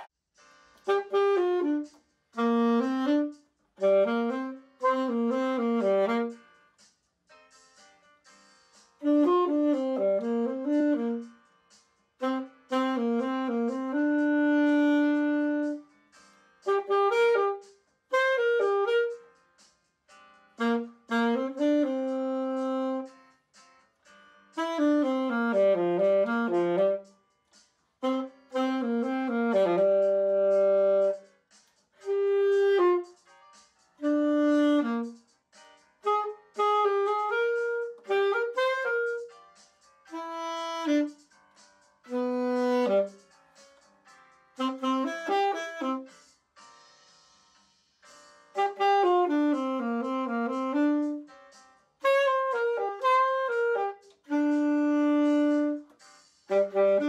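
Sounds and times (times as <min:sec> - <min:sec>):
solo alto saxophone: 0:00.9 - 0:06.5, 0:09.0 - 0:11.4, 0:12.2 - 0:15.9, 0:16.6 - 0:19.3, 0:20.6 - 0:23.2, 0:24.6 - 0:27.2, 0:28.0 - 0:31.3, 0:32.0 - 0:33.2, 0:34.0 - 0:35.2, 0:36.0 - 0:39.4, 0:40.1 - 0:41.2, 0:42.1 - 0:43.3, 0:44.6 - 0:46.1, 0:48.6 - 0:51.3, 0:52.0 - 0:57.0.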